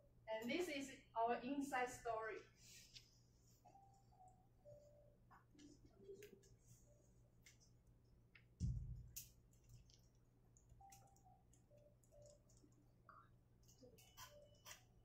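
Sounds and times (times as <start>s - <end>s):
dull low thump: 8.6s - 9.1s.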